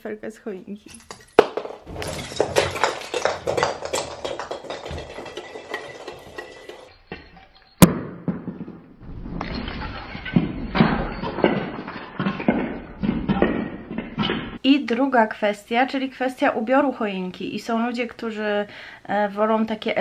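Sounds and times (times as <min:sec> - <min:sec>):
baubles knocking and clinking: 0:00.9 - 0:07.4, 0:09.4 - 0:14.6.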